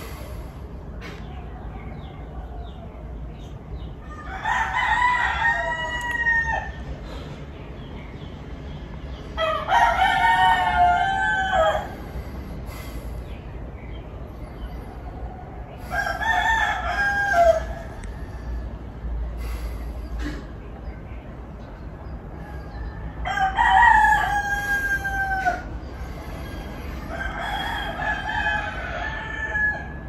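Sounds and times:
rooster crowing: 4.0 - 6.9, 9.4 - 12.0, 15.8 - 18.8, 22.4 - 30.0.

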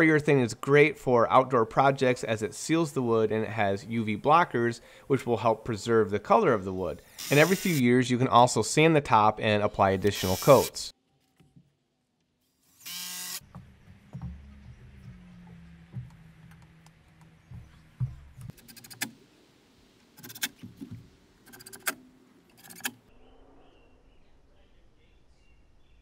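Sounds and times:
cordless drill running: 7.2 - 7.8, 12.8 - 13.4
low motor hum: 13.4 - 18.5.

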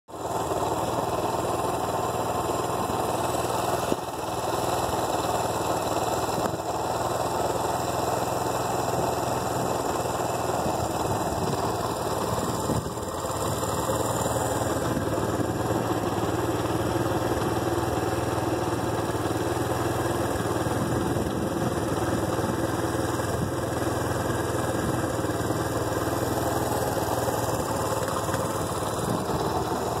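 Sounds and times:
diesel locomotive engine idling: 0.1 - 30.0.

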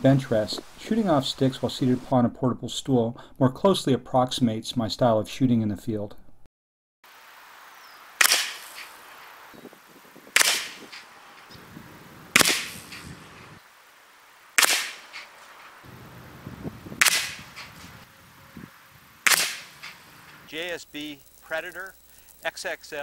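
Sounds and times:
air rifle shots: 8.2 - 9.0, 10.3 - 11.1, 12.3 - 13.4, 14.6 - 15.4, 17.0 - 18.0, 19.2 - 20.4.

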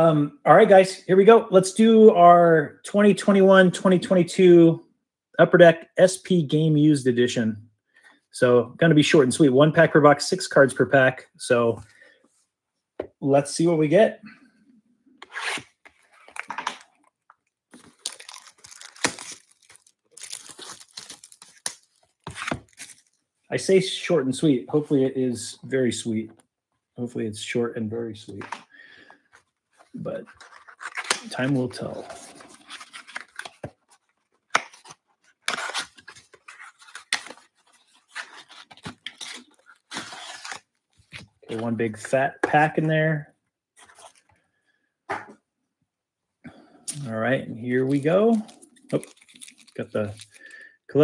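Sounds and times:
cardboard tearing: 17.8 - 23.2, 29.9 - 41.5
plastic shrink wrap tearing: 17.8 - 23.2, 47.8 - 50.5.

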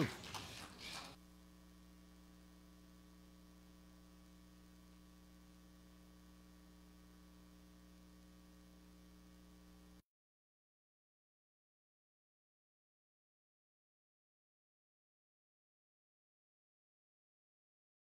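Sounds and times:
faint electrical hum: 0.0 - 10.0.

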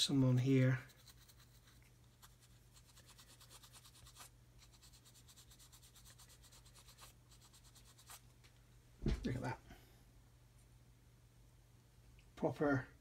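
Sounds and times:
paintbrush scratching on plastic: 0.4 - 8.3.

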